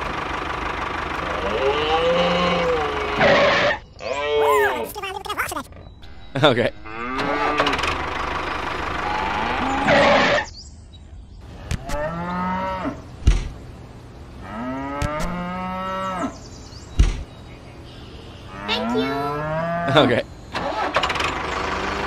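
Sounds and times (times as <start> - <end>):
cow mooing: 1.3 - 4.7, 6.7 - 7.8, 11.9 - 13.0, 14.4 - 16.4, 18.5 - 20.1.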